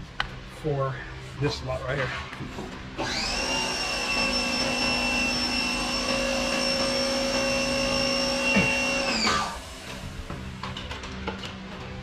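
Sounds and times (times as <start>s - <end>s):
multi-toned machine whine: 3.0s - 10.3s.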